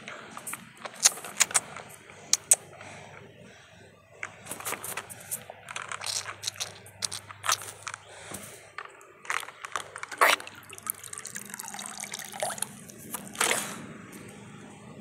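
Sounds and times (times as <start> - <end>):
water splashing in plastic tub: 9.5 - 13.6
water spilling onto grass: 10.2 - 12.8.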